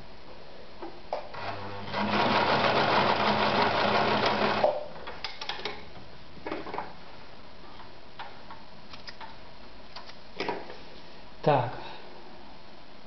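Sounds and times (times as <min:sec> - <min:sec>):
sewing machine running: 0:01.4 - 0:04.7.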